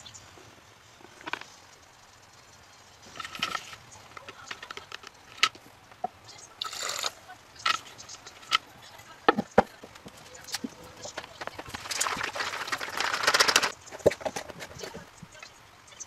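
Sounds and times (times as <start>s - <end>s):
scraping rustle: 3.0s - 5.6s, 6.9s - 15.3s.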